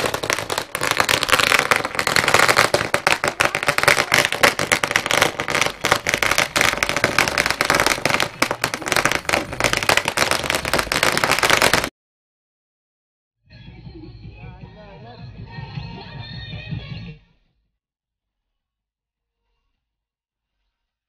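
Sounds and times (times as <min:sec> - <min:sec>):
firecrackers going off: 0:00.0 - 0:11.9.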